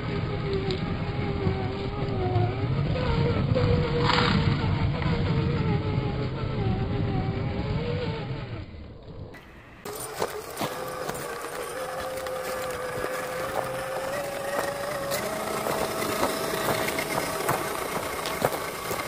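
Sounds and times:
electric motor whining: 0:00.0 - 0:19.0
tyres clicking on stones: 0:09.9 - 0:19.0.

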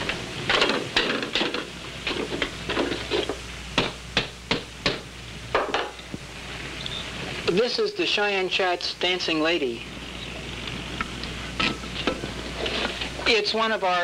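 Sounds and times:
hard objects knocking and clattering: 0:00.5 - 0:05.0.

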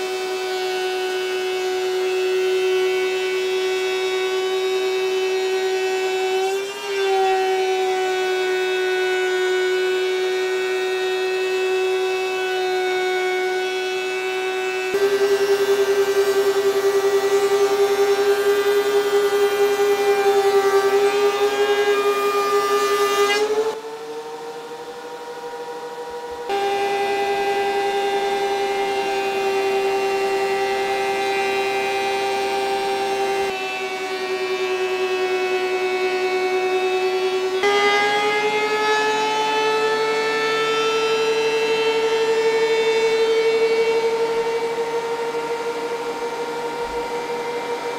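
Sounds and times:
planer cutting board: 0:00.0 - 0:23.8, 0:26.5 - 0:33.8
thickness planer whining: 0:00.0 - 0:47.9.

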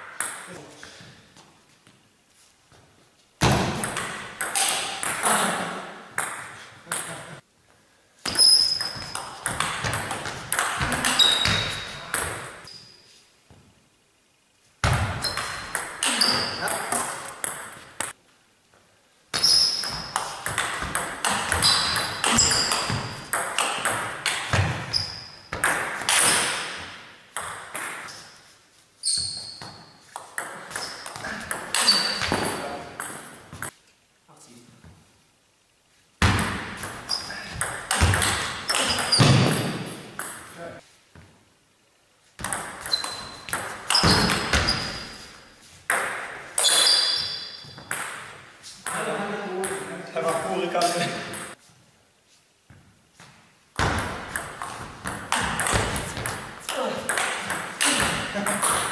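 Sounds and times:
table tennis ball hits echoing: 0:03.4 - 0:07.2, 0:08.3 - 0:12.7, 0:14.8 - 0:18.2, 0:19.3 - 0:28.1, 0:29.6 - 0:33.8, 0:36.2 - 0:40.5, 0:42.4 - 0:49.9, 0:53.8 - 0:58.9.

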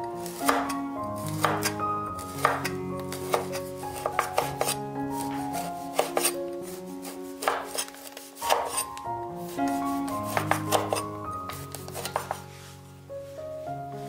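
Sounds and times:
cleaver slicing meat: 0:00.3 - 0:08.9, 0:09.6 - 0:12.4.

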